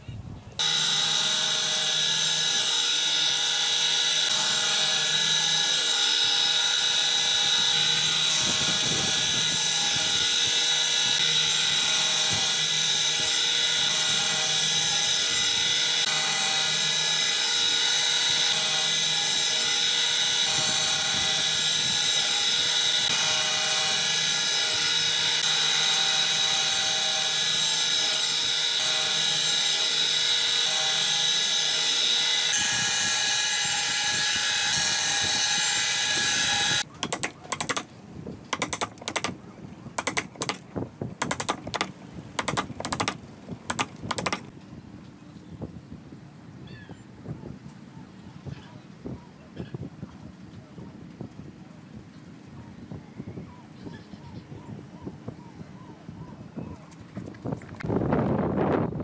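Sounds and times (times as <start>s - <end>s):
saw blade cutting wood: 0.6s - 37.9s, 38.5s - 39.4s, 40.0s - 44.5s
table saw whining: 0.6s - 37.9s, 41.2s - 44.5s.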